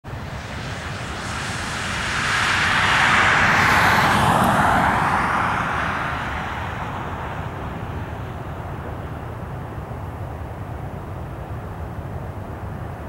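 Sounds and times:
vehicle passing by: 0.2s - 9.2s.

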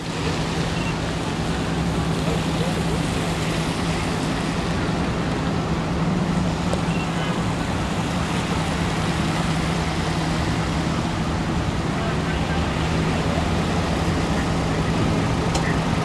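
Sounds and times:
road traffic engine hum: 0.0s - 16.0s.

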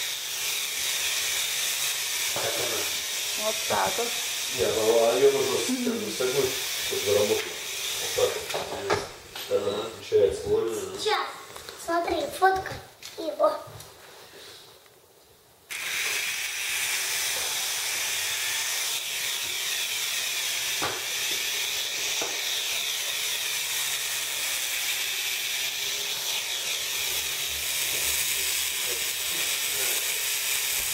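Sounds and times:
toy helicopter rotors whirring: 0.0s - 8.6s, 15.7s - 30.9s.

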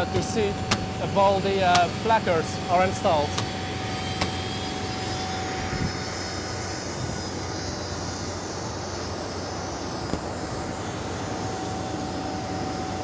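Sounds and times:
jet auxiliary power unit whine: 0.0s - 13.0s.

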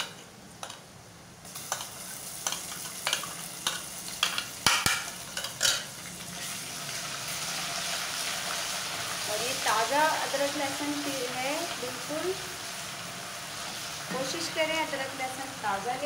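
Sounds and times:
paste sizzling in hot oil: 1.4s - 16.0s.

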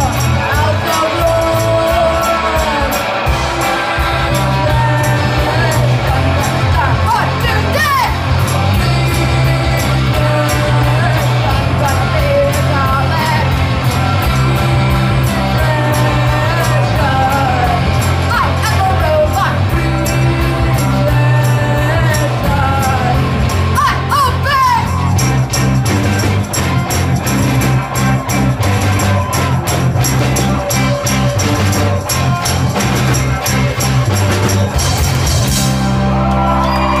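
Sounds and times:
people singing: 0.0s - 23.7s
live rock band playing: 0.0s - 37.0s
drum beat: 22.5s - 35.8s.

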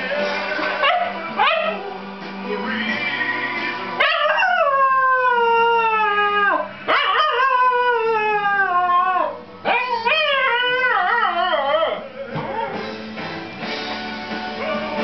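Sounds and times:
recorded music: 0.0s - 15.0s
dog howling: 0.8s - 2.0s, 4.0s - 12.8s.

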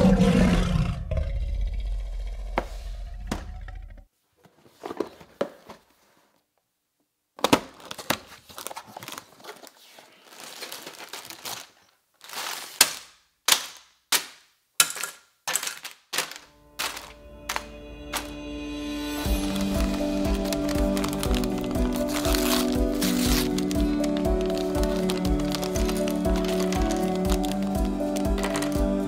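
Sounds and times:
roar sound effect: 0.0s - 4.0s
paper and plastic crinkling: 4.4s - 6.4s, 7.4s - 13.8s, 14.9s - 18.4s, 19.3s - 29.0s
bags of plastic pieces clattering: 7.4s - 13.8s, 14.8s - 18.4s, 19.3s - 29.0s.

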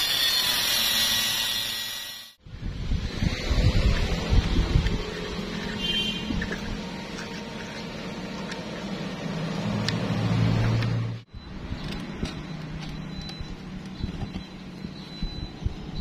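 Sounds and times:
metal clicks and scrapes: 3.8s - 11.0s, 11.6s - 15.0s.

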